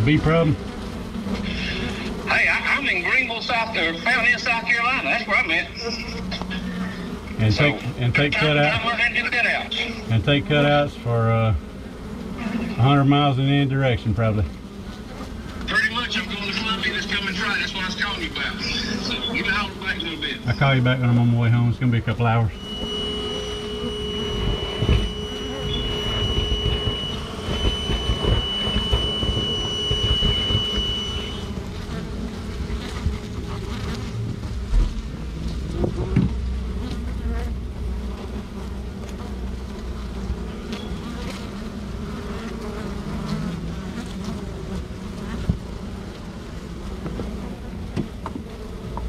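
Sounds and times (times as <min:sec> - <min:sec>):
bees buzzing: 0:00.0 - 0:49.0
steady high tone: 0:22.5 - 0:31.6.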